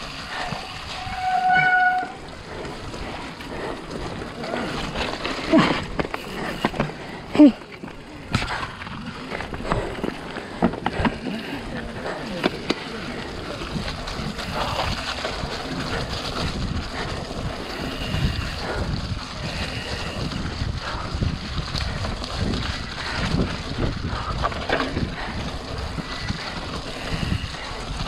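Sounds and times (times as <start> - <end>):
bike rattling over bumps: 0.0 - 28.0
brief high squeaks: 1.0 - 2.2
tyres rumbling and splashing in mud: 2.1 - 28.0
wind noise on microphone: 8.2 - 28.0.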